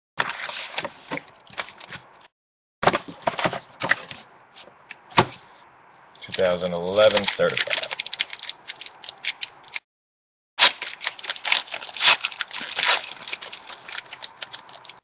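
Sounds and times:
foil wrapper tearing and crinkling: 0:06.3 - 0:09.8, 0:10.6 - 0:15.0.

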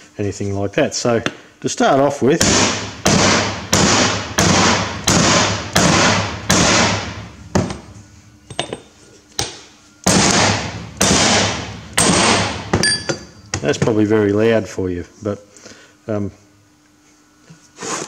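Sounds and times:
hammer striking steel: 0:09.4 - 0:13.4.

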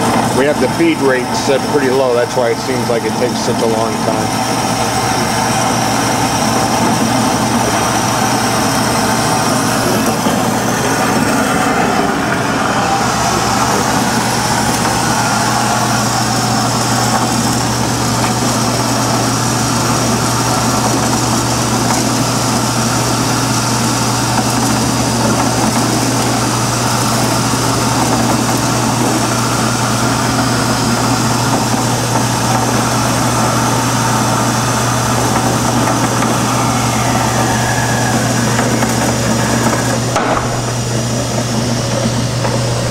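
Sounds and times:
band saw running: 0:00.0 - 0:42.9.

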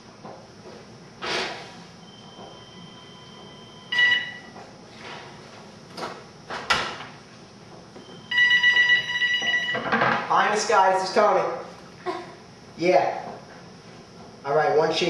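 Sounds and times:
telephone ringing: 0:02.0 - 0:04.5, 0:08.0 - 0:10.0.

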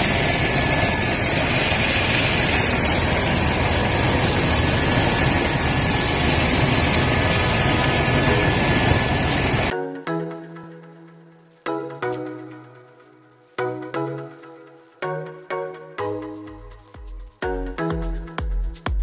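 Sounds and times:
aircraft cabin engine noise: 0:00.0 - 0:09.7.

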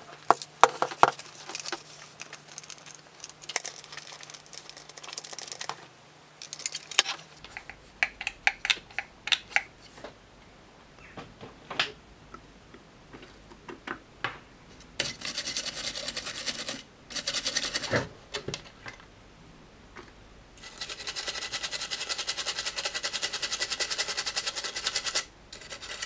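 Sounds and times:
plastic parts clicking: 0:00.3 - 0:05.8, 0:06.4 - 0:09.7
toothbrush scrubbing: 0:15.0 - 0:17.9, 0:20.6 - 0:26.0.

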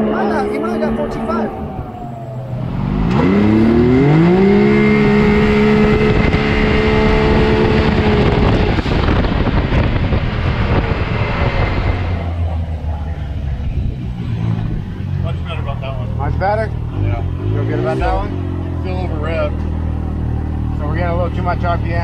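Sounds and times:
engine revving at full throttle: 0:00.0 - 0:22.0.

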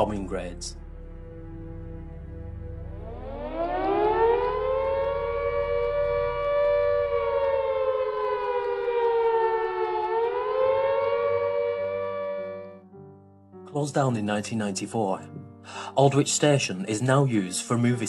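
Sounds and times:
air-raid siren wailing: 0:00.3 - 0:12.8.

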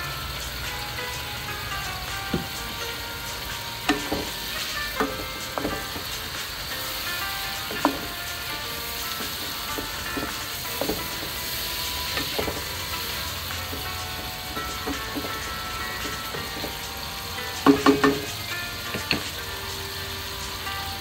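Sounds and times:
meat sizzling in a wok: 0:00.0 - 0:21.0
wooden spatula knocking on pan: 0:02.3 - 0:02.7, 0:03.8 - 0:16.9, 0:17.6 - 0:19.3.

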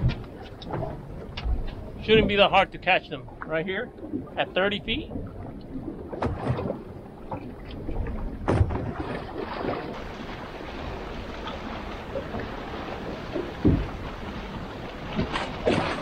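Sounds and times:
wind on microphone: 0:00.0 - 0:02.5
water lapping against boat hull: 0:00.0 - 0:16.0.

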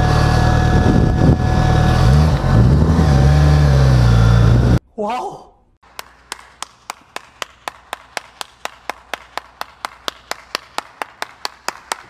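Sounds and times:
person clapping hands: 0:05.8 - 0:12.0.

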